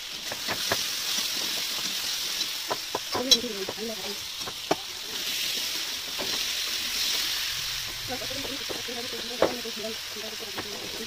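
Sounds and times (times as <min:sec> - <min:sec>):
vegetables sizzling in a wok: 0:00.0 - 0:11.0
metal spatula tapping pan: 0:00.2 - 0:04.9.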